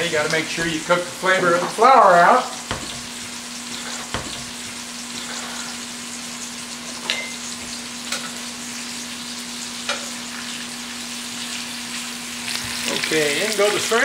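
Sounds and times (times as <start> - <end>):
scallops sizzling in butter: 0.0 - 14.0.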